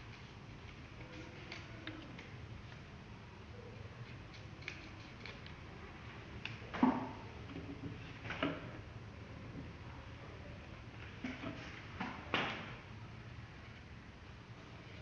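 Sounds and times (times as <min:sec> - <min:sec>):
scissors snipping paper: 0:04.0 - 0:05.6.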